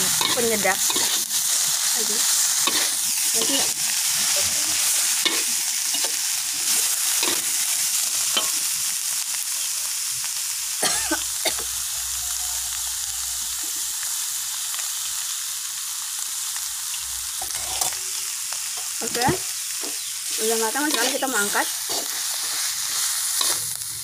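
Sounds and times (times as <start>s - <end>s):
metal spoon scraping a wok: 0.0s - 8.7s, 17.4s - 24.0s
hot oil sizzling: 0.0s - 24.0s.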